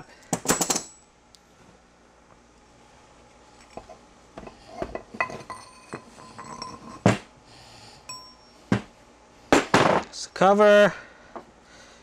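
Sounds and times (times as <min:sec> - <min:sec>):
metal parts clinking on wooden bench: 0:00.4 - 0:01.0, 0:04.9 - 0:07.2.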